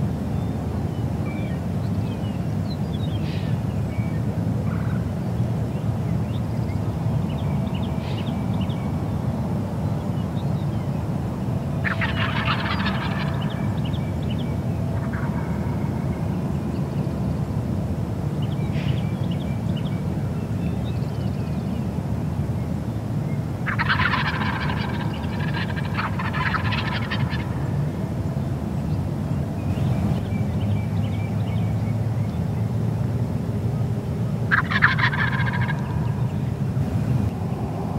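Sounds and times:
steady low rumble: 4.4s - 20.9s, 22.5s - 37.9s
turkey gobbling: 11.8s - 13.7s, 15.0s - 15.8s, 23.6s - 27.6s, 34.5s - 36.3s
fainter turkey calls: 11.8s - 14.3s, 15.0s - 15.9s, 23.6s - 27.6s, 34.5s - 36.5s.

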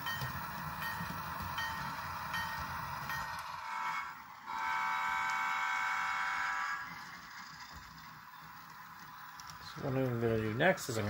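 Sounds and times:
model train rumbling and clicking: 0.0s - 11.0s
train horn blast: 3.6s - 6.9s.

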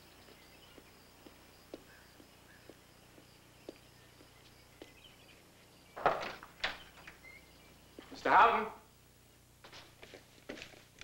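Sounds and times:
footsteps on stone: 0.0s - 6.4s, 9.6s - 11.0s.

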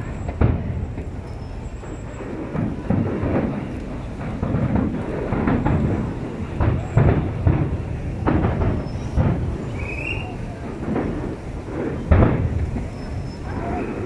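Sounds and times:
firework shells booming: 0.0s - 14.0s.

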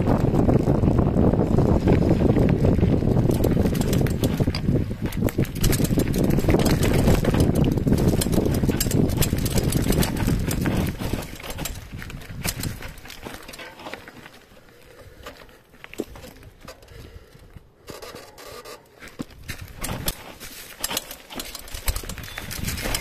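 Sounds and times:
wind rumble on microphone: 0.0s - 13.4s, 21.6s - 23.0s
bike tyres rattling over stones: 0.0s - 23.0s.

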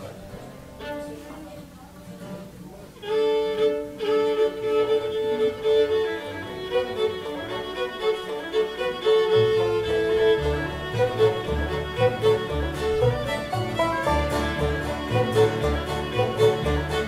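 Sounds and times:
fiddle playing: 0.0s - 2.0s, 2.7s - 17.0s
low bass notes: 9.7s - 17.0s.

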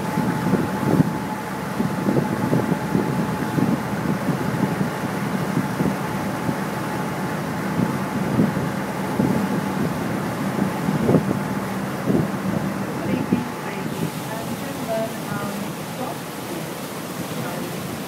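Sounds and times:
ferry engines droning: 0.0s - 18.0s
wind buffeting microphone: 0.0s - 18.0s.

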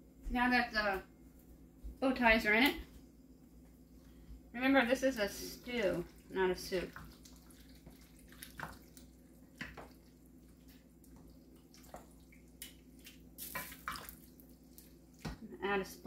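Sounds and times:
faint steady hum: 0.0s - 16.0s
spoon stirring wet pasta: 5.3s - 15.4s.

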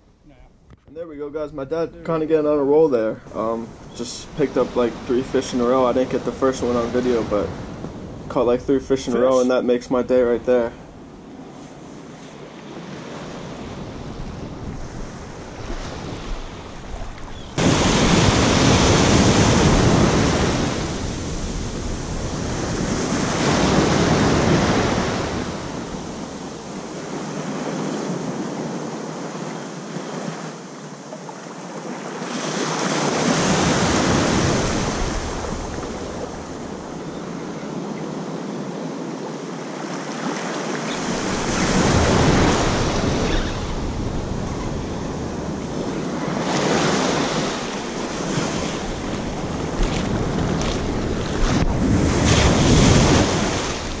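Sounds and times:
waves washing up a beach: 2.7s - 54.0s
wind buffeting microphone: 13.3s - 28.8s, 41.0s - 54.0s.

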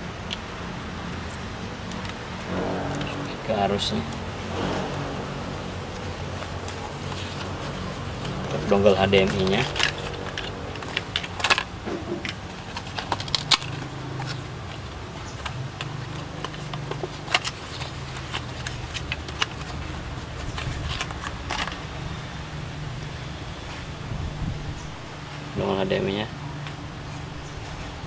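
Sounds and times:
low steady hum: 0.0s - 16.1s.

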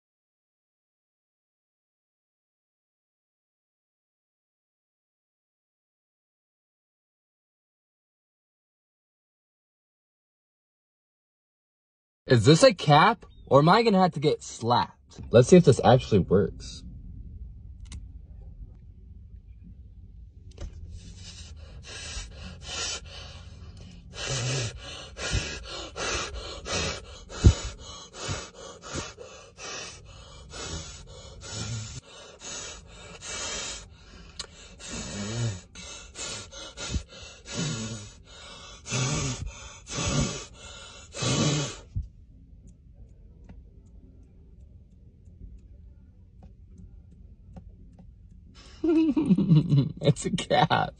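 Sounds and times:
man blowing out hard: 38.8s - 40.5s, 41.1s - 41.8s.

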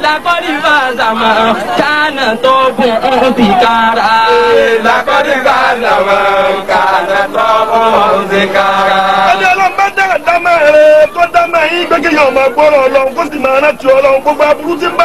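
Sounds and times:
man chanting: 0.0s - 4.8s, 9.2s - 15.0s.

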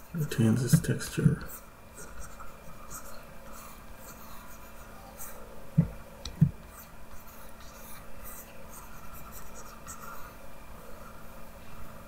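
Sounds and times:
stylus scratching on tablet: 0.0s - 5.6s, 6.4s - 11.4s
dull thumps: 5.8s - 6.6s.

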